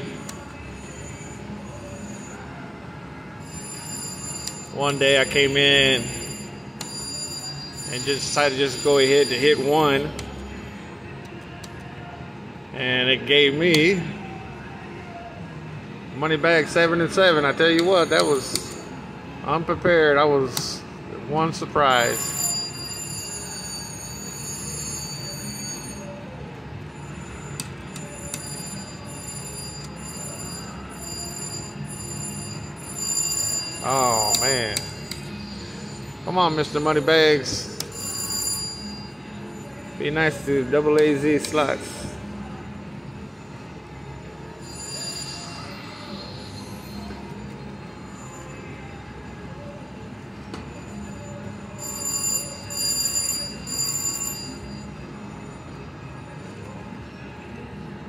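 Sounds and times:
slot machine electronic chimes: 0:03.4 - 0:10.8, 0:21.8 - 0:26.2, 0:26.9 - 0:41.9, 0:50.8 - 0:55.0.

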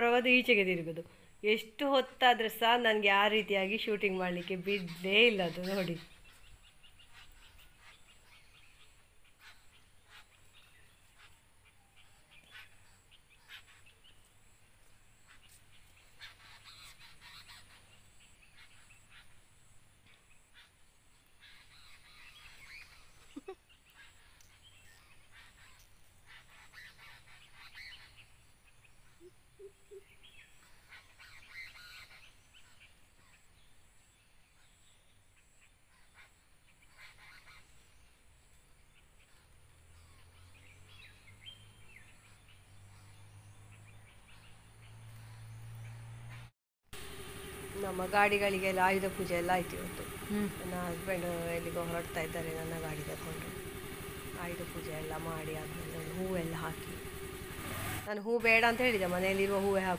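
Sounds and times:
faint bird chirps: 0:03.7 - 0:46.4.

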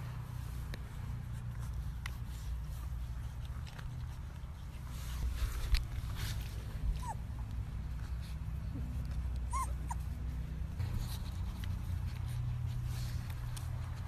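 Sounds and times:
puppy whimpering: 0:06.8 - 0:07.6, 0:09.4 - 0:10.3.

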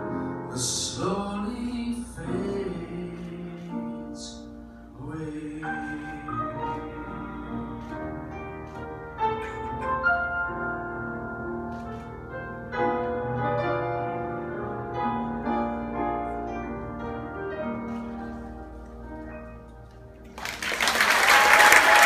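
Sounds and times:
piano chords ringing: 0:00.0 - 0:20.6.

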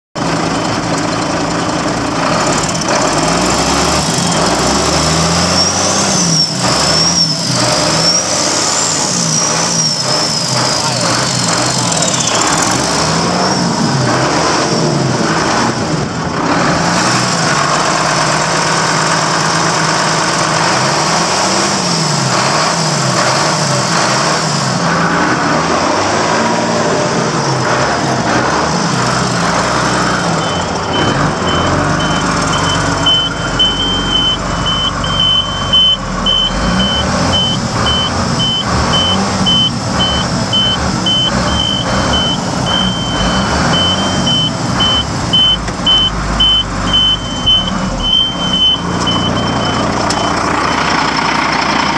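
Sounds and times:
diesel truck engine running: 0:00.2 - 0:51.9
high repeating beep: 0:30.1 - 0:50.9.

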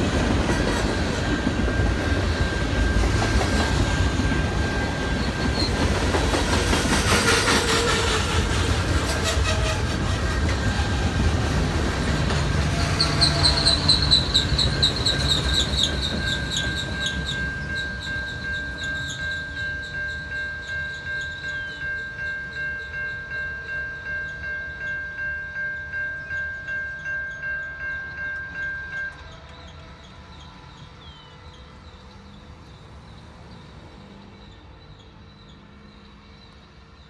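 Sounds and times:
level crossing warning bell: 0:00.0 - 0:06.4, 0:13.0 - 0:36.1
passing train rumble: 0:00.0 - 0:37.0.

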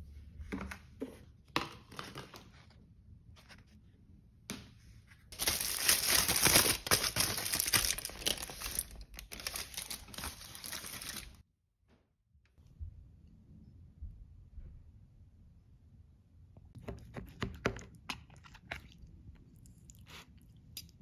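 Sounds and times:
aluminium foil crinkling: 0:05.4 - 0:11.4.

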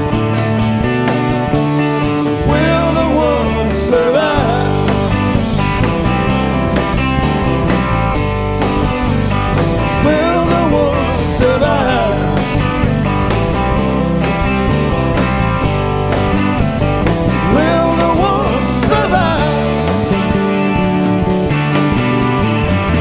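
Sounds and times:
bass and drums: 0:00.0 - 0:23.0
electric and acoustic guitars: 0:00.0 - 0:23.0
man singing: 0:02.3 - 0:05.2, 0:09.9 - 0:12.8, 0:17.4 - 0:20.1.

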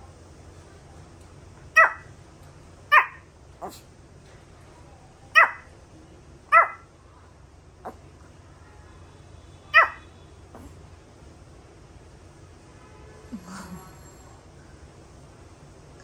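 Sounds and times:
small dog yapping: 0:01.7 - 0:02.1, 0:02.9 - 0:03.9, 0:05.3 - 0:05.7, 0:06.5 - 0:06.9, 0:09.7 - 0:10.8.

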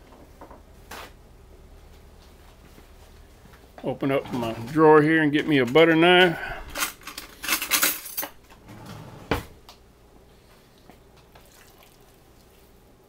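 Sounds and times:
cutlery clattering in a drawer: 0:06.7 - 0:09.1.

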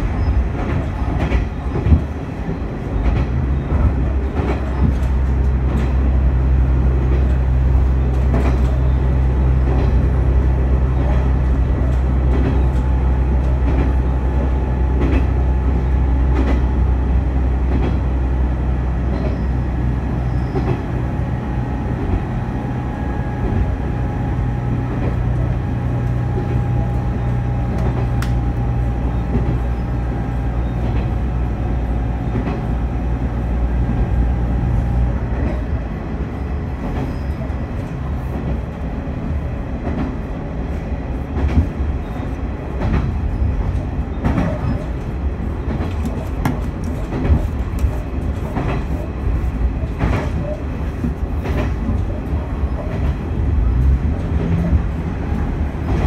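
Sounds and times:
railcar engine drone: 0:00.0 - 0:56.0
wheels clicking over rail joints: 0:41.3 - 0:56.0.

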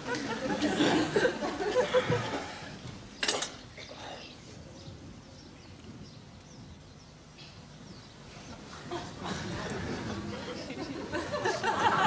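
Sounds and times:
laughter: 0:00.0 - 0:02.6, 0:08.7 - 0:12.0
faint birdsong chirping: 0:01.7 - 0:11.1.

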